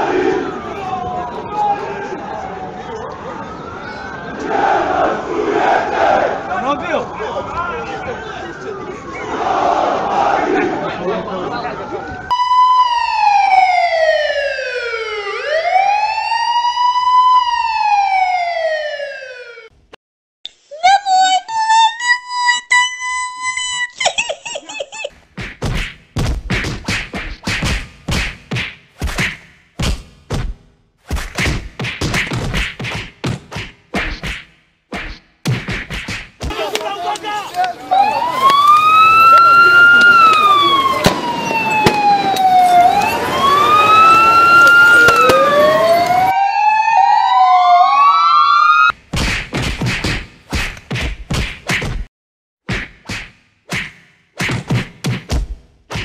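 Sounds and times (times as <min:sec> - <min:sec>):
police siren wailing: 0:00.0 - 0:19.7, 0:36.5 - 0:49.0
heavy sharp thumps: 0:25.2 - 0:36.6
sharp whacking hits: 0:25.4 - 0:36.6, 0:49.1 - 0:52.1, 0:52.7 - 0:56.0.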